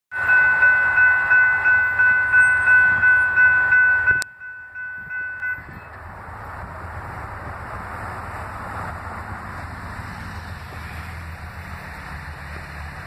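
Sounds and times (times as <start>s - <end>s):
railroad crossing bell ringing: 0.1s - 6.2s.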